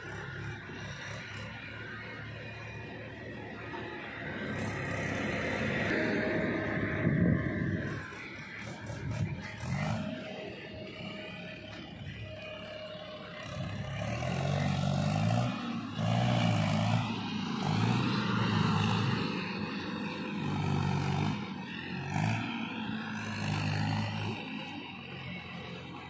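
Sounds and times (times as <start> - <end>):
diesel tractor engine revving: 0.0 - 26.0.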